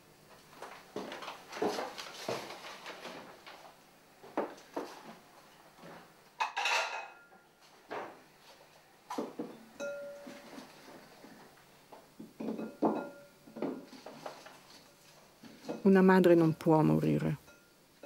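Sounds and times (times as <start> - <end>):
bowl ringing: 9.8 - 10.4, 12.6 - 13.4.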